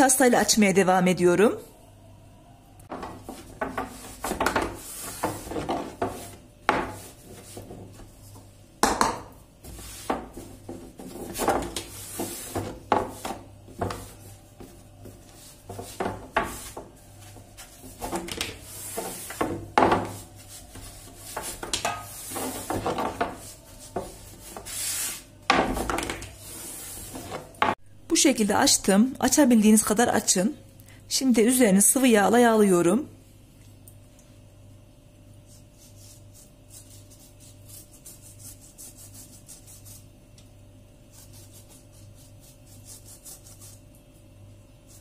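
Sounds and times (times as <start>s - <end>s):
rolling pin on wooden board: 2.9s - 8.1s, 8.8s - 27.8s.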